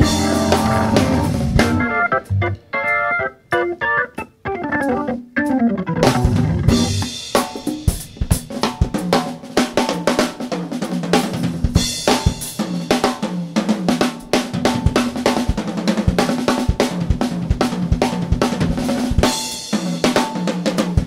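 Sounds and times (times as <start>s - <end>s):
bass notes: 0.0s - 3.8s, 4.8s - 7.2s
organ playing a falling run: 0.0s - 7.6s
drum kit: 0.0s - 21.0s.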